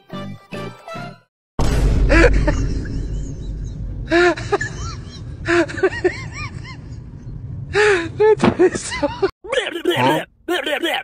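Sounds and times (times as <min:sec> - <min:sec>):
steady low rumble: 0:01.6 - 0:08.4.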